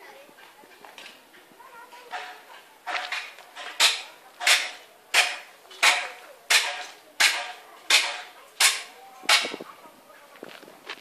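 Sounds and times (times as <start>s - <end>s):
hammer strikes ringing: 2.1s - 9.6s.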